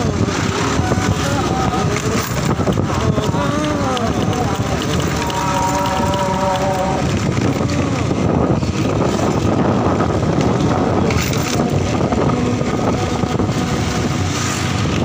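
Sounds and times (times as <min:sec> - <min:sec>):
motorcycle engine: 0:00.0 - 0:15.0
wind on microphone: 0:00.0 - 0:15.0.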